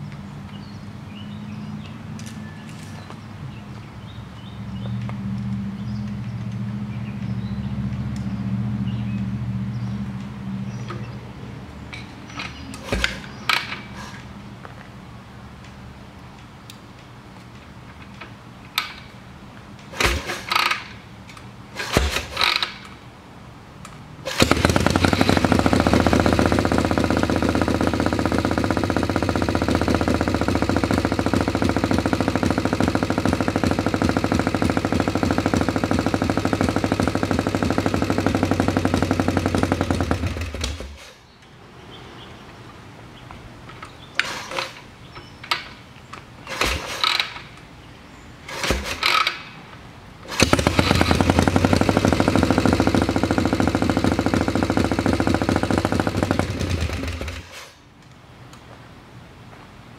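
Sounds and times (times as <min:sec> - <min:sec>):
motorcycle being kick-started: 0:11.9 - 0:14.2, 0:19.9 - 0:21.0, 0:21.8 - 0:23.0, 0:24.2 - 0:41.2, 0:43.7 - 0:45.8, 0:46.4 - 0:47.6, 0:48.5 - 0:49.6, 0:50.2 - 0:57.8
motorcycle engine running: 0:24.3 - 0:41.0, 0:50.3 - 0:57.6.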